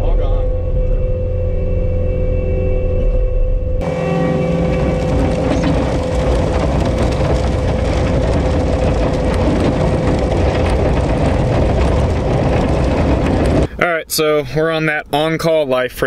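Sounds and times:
high hum: 0.0s - 14.1s
diesel engine droning: 0.0s - 14.3s
machine rattling: 3.8s - 13.7s.

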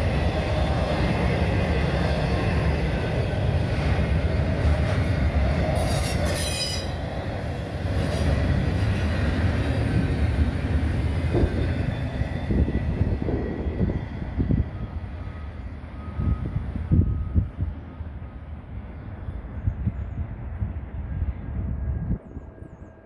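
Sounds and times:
freight cars rumbling on rails: 0.0s - 23.0s
high-pitched wheel squeal: 5.8s - 7.1s.

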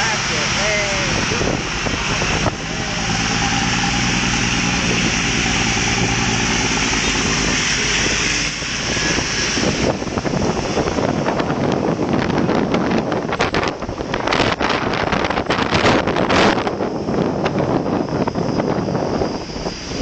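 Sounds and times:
tyres hissing on wet street: 0.0s - 12.4s
car engines running: 0.0s - 20.0s
wind buffeting microphone: 0.0s - 20.0s.

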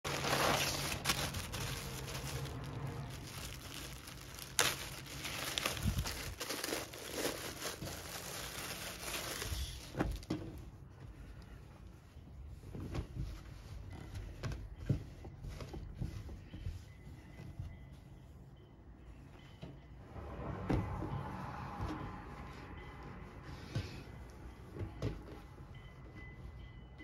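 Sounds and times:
sharp plastic crackle: 0.0s - 10.4s
plastic bag crinkling: 0.1s - 10.3s.

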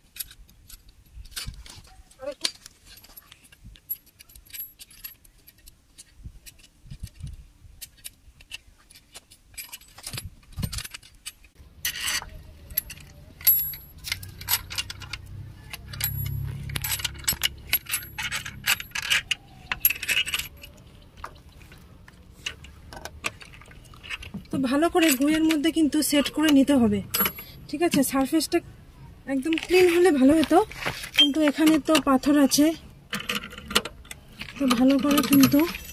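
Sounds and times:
scissor jack clinking: 9.6s - 20.8s, 31.0s - 35.9s.

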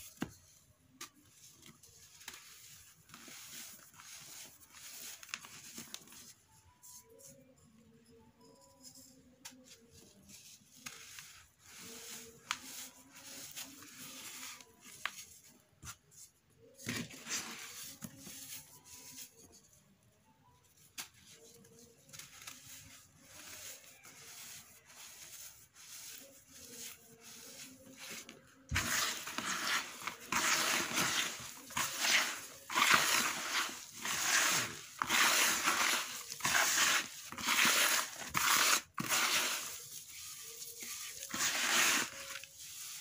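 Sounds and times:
raking through grit: 28.7s - 43.0s.

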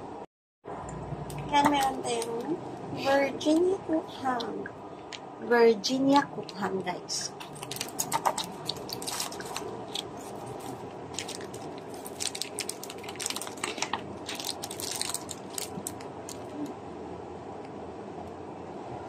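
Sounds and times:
low background hum: 0.0s - 19.0s
plastic packaging crinkling: 7.4s - 16.7s.

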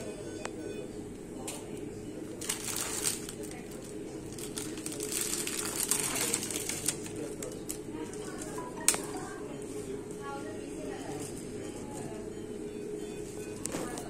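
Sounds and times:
plastic wrapper crinkling: 2.4s - 9.0s.

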